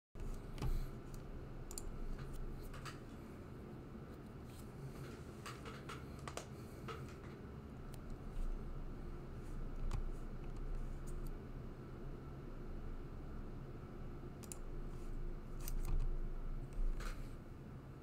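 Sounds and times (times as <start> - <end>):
keyboard and mouse clicks: 0.2 - 3.2, 5.0 - 8.2, 9.7 - 11.4, 14.4 - 14.7, 15.6 - 16.1
low steady hum: 0.2 - 18.0.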